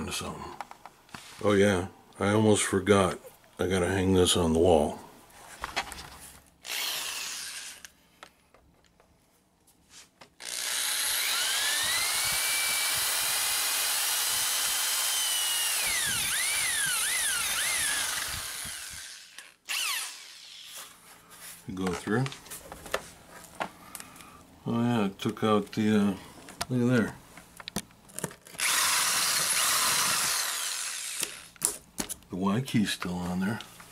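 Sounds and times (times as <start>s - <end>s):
cordless drill boring plastic: 6.6s - 8.0s, 10.4s - 20.7s, 28.5s - 31.7s.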